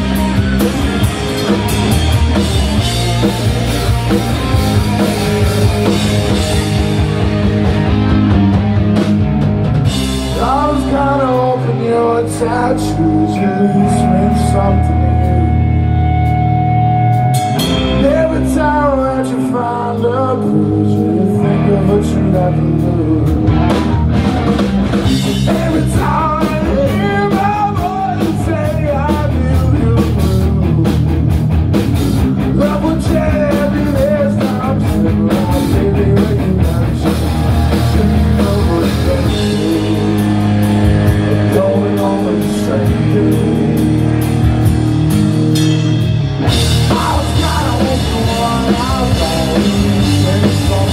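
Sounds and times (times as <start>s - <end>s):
punk rock band playing live: 0.0s - 50.9s
man singing lead vocal: 10.2s - 15.8s, 17.8s - 23.9s, 25.0s - 31.3s, 32.4s - 44.3s, 46.5s - 50.9s.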